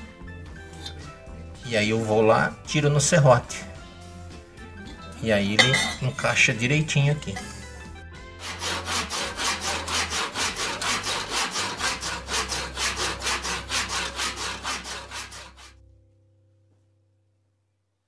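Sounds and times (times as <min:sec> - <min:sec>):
handsaw cutting wood: 0:08.4 - 0:15.8.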